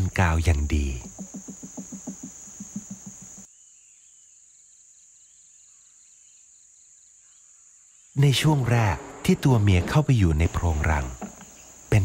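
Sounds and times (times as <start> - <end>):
bird bill tapping rapidly: 0.0 - 3.5
faint bird chirps: 0.0 - 8.7
faint fast insect trill: 0.0 - 12.0
high insect drone: 0.0 - 12.0.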